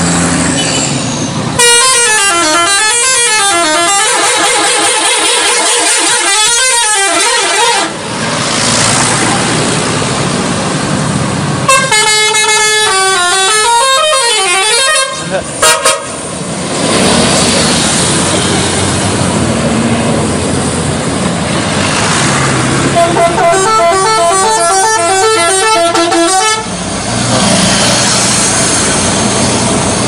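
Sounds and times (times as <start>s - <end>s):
passing buses rushing: 0.0s - 30.0s
musical bus horn tune: 1.6s - 8.1s, 11.6s - 16.2s, 22.8s - 26.8s.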